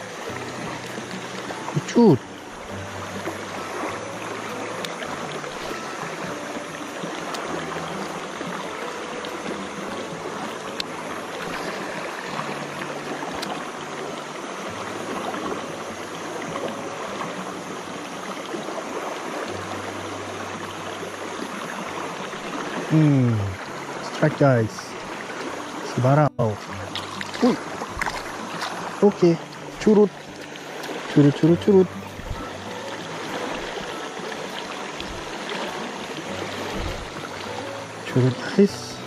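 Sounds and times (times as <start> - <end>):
stream rushing over stones: 0.0 - 39.0
faint ticks: 10.5 - 11.7.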